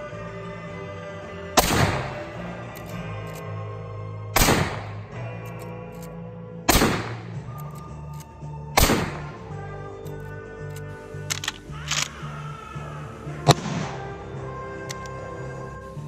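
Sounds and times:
background music: 0.0 - 16.0
rifle shots: 1.6 - 2.2, 4.4 - 5.0, 6.7 - 7.4, 8.8 - 9.4.

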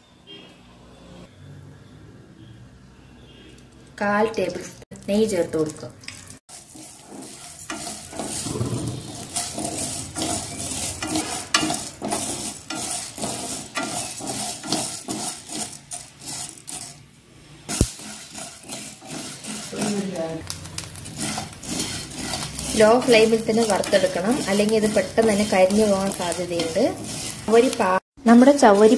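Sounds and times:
food sizzling in frying pan: 4.5 - 28.9
spoon scraping pan: 6.1 - 28.9.

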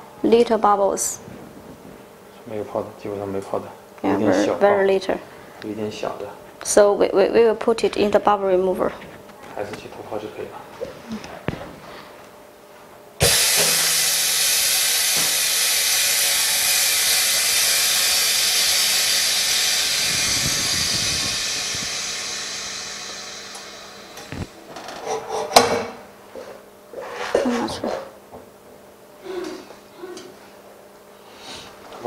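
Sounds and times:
compressed air hissing: 13.2 - 24.6.

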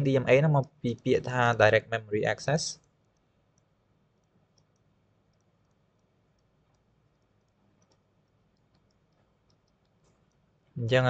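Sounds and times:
soft irregular clicks: 2.7 - 10.8.

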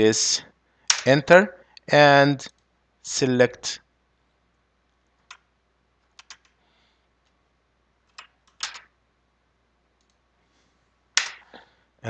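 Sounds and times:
mouse and keyboard clicks: 5.2 - 6.6.

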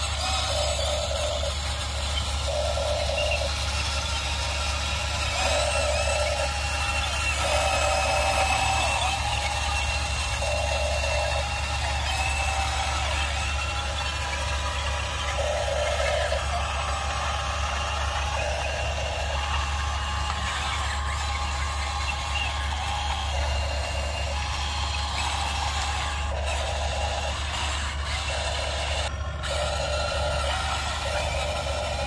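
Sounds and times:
engine bursts: 0.0 - 32.0
heavy vehicle engine hum: 0.0 - 32.0.

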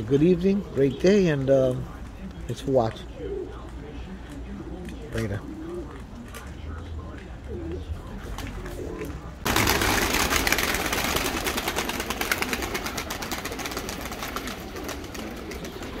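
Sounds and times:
pigeons cooing: 0.0 - 16.0
pigeon wings flapping: 8.3 - 16.0.

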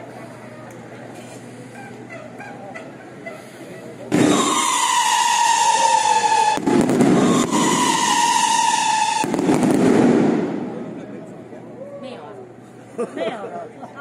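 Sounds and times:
shrill firework whistles: 4.1 - 10.3
firework crackling bursts: 4.1 - 11.0.

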